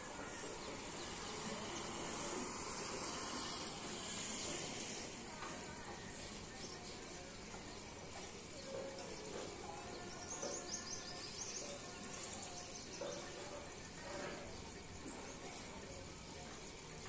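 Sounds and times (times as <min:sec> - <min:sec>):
small birds chirping: 0:08.4 - 0:13.5.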